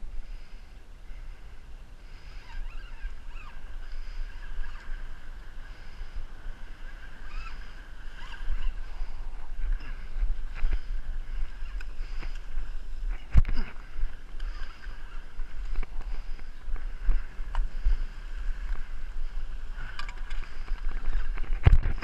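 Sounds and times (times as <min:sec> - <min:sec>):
wind rumbling on microphone: 0:00.0 - 0:22.0
fishing reel being cranked: 0:02.3 - 0:05.2, 0:07.0 - 0:13.8.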